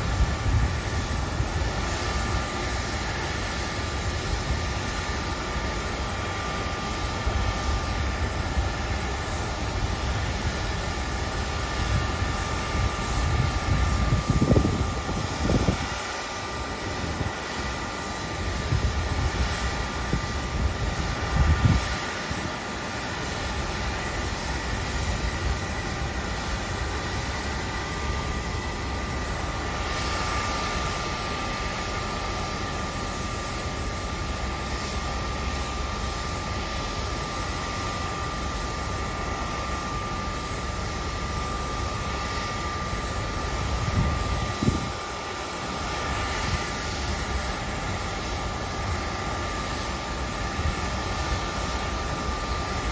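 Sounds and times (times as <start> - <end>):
wind buffeting microphone: 0.0 - 2.5, 11.3 - 17.6, 18.5 - 22.6, 43.4 - 45.2
jet auxiliary power unit whine: 0.0 - 52.9.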